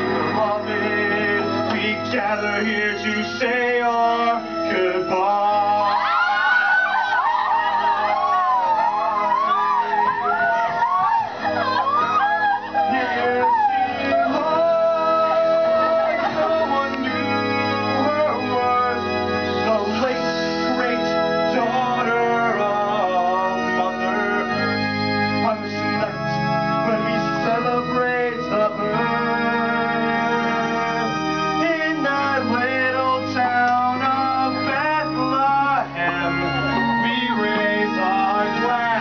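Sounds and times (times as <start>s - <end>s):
organ keyboard chords: 0.0s - 39.0s
voices singing: 0.0s - 39.0s.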